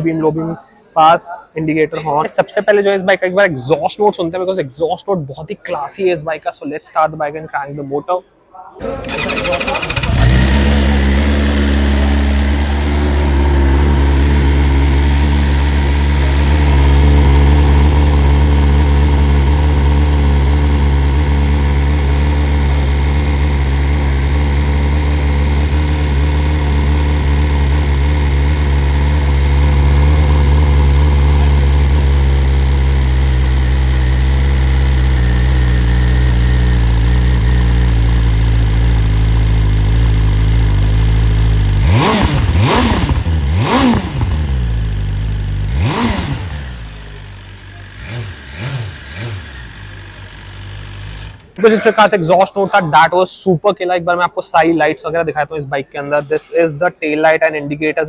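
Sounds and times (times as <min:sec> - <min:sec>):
engine revving blips: 0:08.8 - 0:51.6
motorcycle engine idling: 0:08.8 - 0:51.6.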